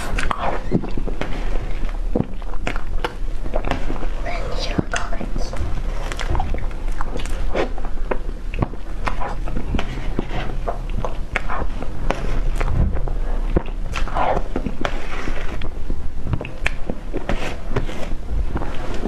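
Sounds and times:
mouth smacking and chewing: 0.0s - 4.0s, 4.7s - 17.3s.

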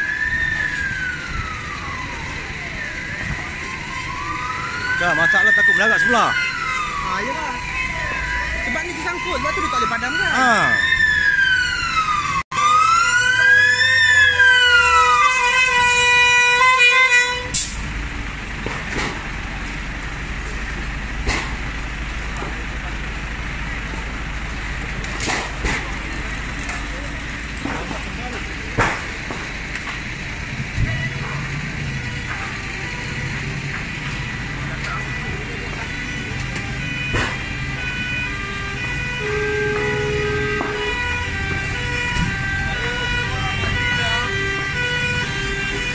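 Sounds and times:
low engine rumble: 0.0s - 5.8s, 17.4s - 45.9s
fire engine siren wailing: 0.0s - 45.9s
steady horn-like tone: 37.9s - 41.2s.

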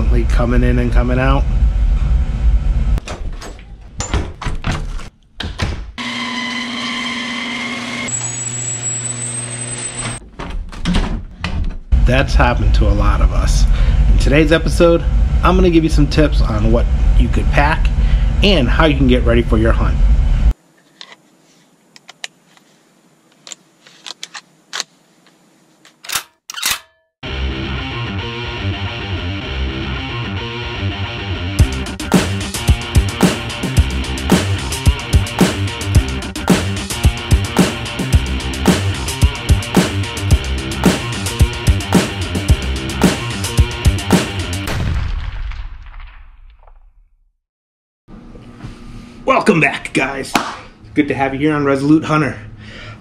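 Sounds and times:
garage door opener motor whining: 6.0s - 10.2s
guitar music: 27.2s - 44.6s.

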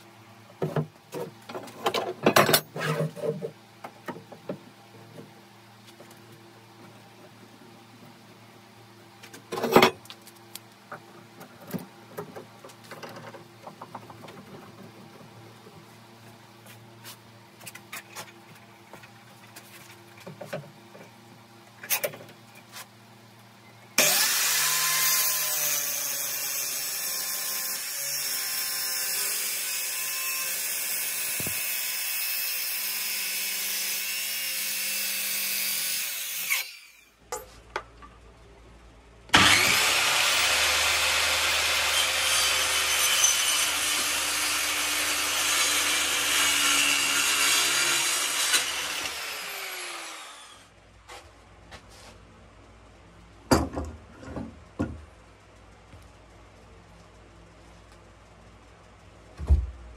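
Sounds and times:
electric saw cutting wood: 24.0s - 37.1s, 39.3s - 50.7s.

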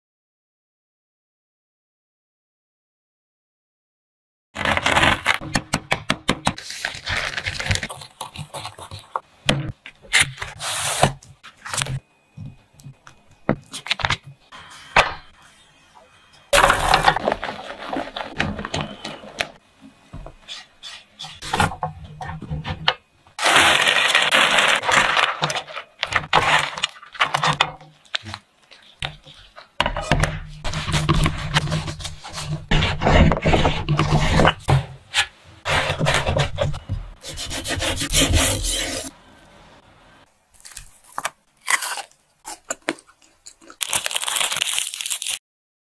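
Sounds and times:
spatula scraping frying pan: 20.4s - 21.7s, 29.0s - 39.2s.

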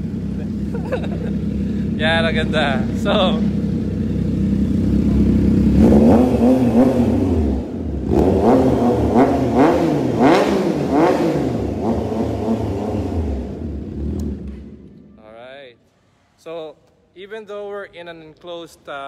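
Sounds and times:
motorcycle engine idling: 0.0s - 8.2s
motorcycle engine revving: 0.0s - 15.0s.

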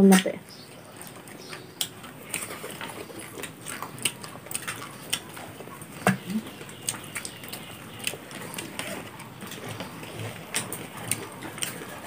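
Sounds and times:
chewing and lip smacking: 0.5s - 12.0s.

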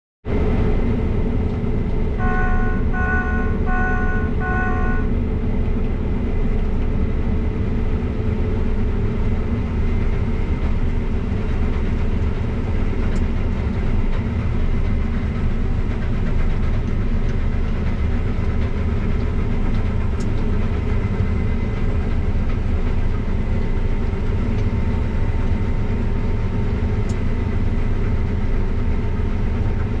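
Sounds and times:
combine harvester drone: 0.3s - 30.0s
short electronic beeps: 2.2s - 5.1s.

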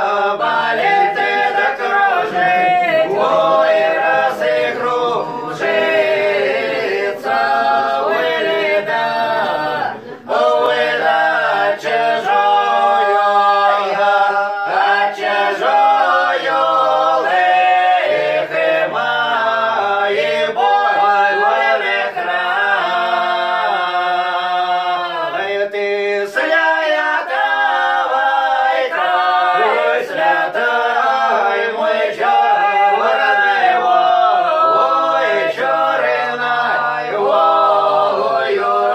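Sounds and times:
folk choir singing: 0.0s - 38.9s.

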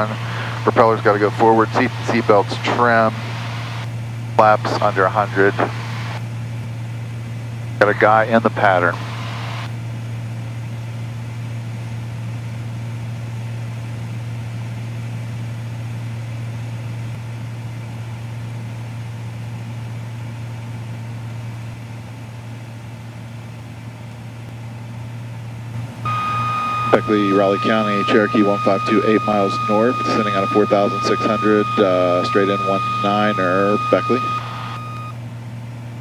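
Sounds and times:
airplane engine drone in cabin: 0.0s - 36.0s
thin steady tone: 26.0s - 35.1s.

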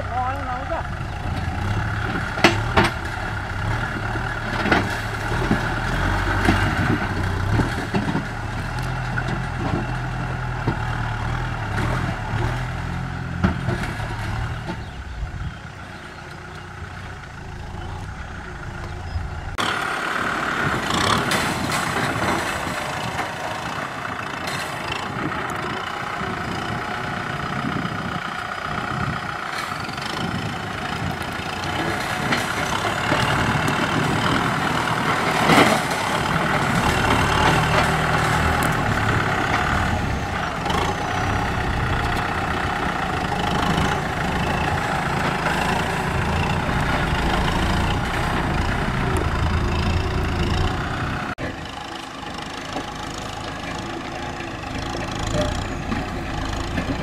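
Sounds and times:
tractor diesel engine running: 0.0s - 57.0s
blade pushing soil: 17.6s - 57.0s.

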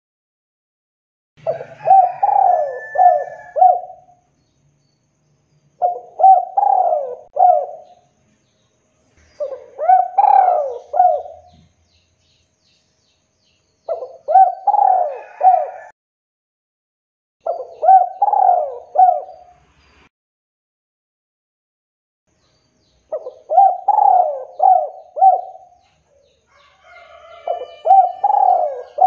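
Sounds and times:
dove cooing: 1.4s - 4.2s, 5.8s - 8.0s, 9.4s - 11.7s, 13.9s - 15.9s, 17.4s - 19.5s, 23.1s - 25.8s, 26.5s - 29.0s.

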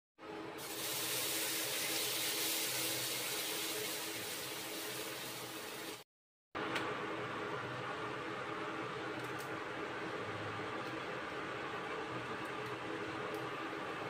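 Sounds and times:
cooktop hum: 0.2s - 6.0s, 6.6s - 14.0s
butter sizzling in a pan: 0.6s - 6.0s.

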